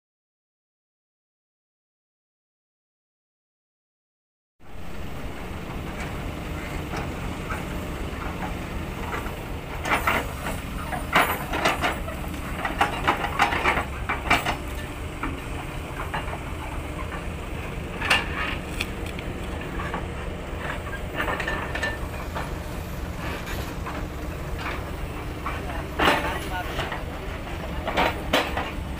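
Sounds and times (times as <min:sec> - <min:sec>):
diesel truck engine droning: 0:04.6 - 0:28.9
metallic clanks and knocks: 0:06.8 - 0:17.3, 0:17.9 - 0:28.9.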